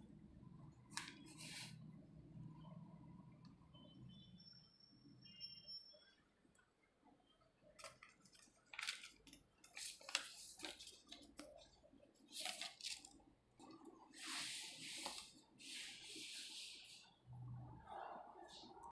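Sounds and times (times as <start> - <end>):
paper rustling and crinkling: 7.8 - 13.8.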